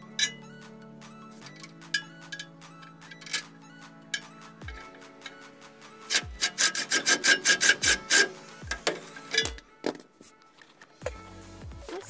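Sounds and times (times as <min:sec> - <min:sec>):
electronic dance music: 0:00.0 - 0:09.3
impact wrench hammering: 0:04.2 - 0:09.6.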